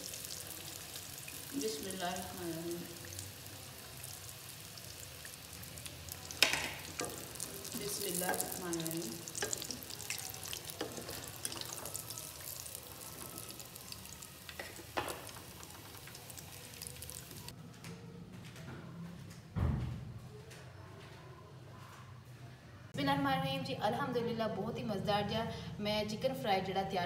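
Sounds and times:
hot oil sizzling: 0.0s - 17.5s.

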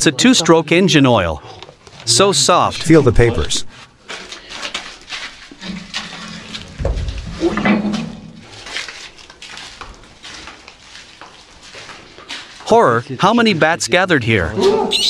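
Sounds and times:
metal clanking and scraping: 5.4s - 9.0s.

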